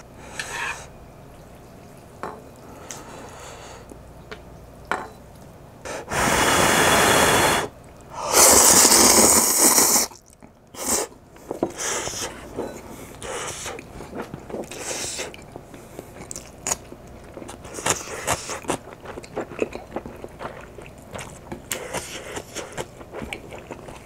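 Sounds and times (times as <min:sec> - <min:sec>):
breath blowing on noodles: 0:05.9 - 0:10.2, 0:10.8 - 0:11.1
loud noodle slurp: 0:06.1 - 0:10.2.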